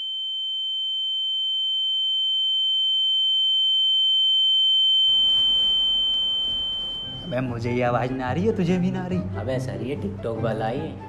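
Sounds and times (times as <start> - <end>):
faint lower tone: 0.0 - 7.7
high-pitched pure tone: 0.0 - 8.3.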